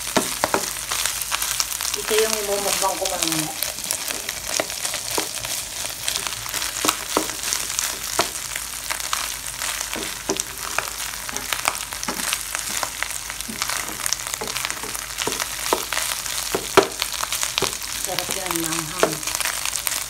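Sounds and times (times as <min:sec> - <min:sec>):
meat sizzling in oil: 0:00.0 - 0:20.0
spatula scraping and tapping pan: 0:00.2 - 0:00.7, 0:03.9 - 0:05.5, 0:06.1 - 0:08.4, 0:09.8 - 0:17.0.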